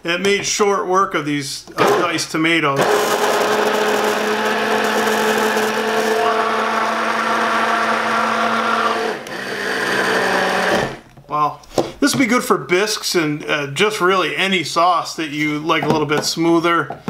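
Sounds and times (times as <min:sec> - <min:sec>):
immersion blender running: 0:01.8 - 0:02.1, 0:02.8 - 0:11.0.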